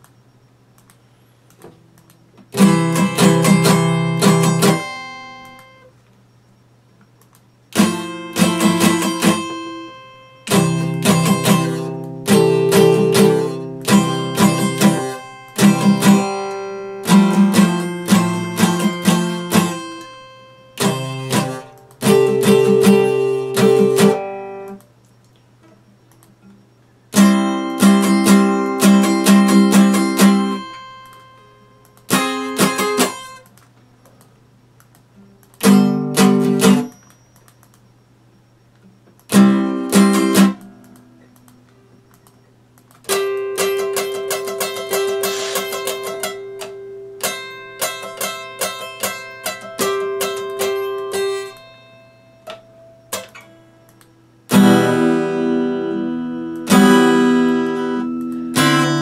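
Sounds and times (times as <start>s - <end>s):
guitar picked notes: 0.0s - 59.0s
acoustic guitar strumming: 1.7s - 6.0s, 7.7s - 24.8s, 25.7s - 34.0s, 35.1s - 37.6s, 38.8s - 59.0s.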